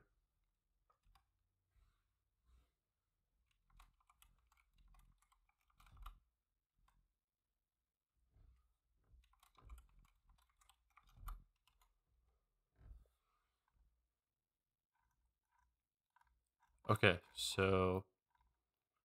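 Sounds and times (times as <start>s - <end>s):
typing on computer keyboard: 3.6s - 6.2s, 9.2s - 11.9s.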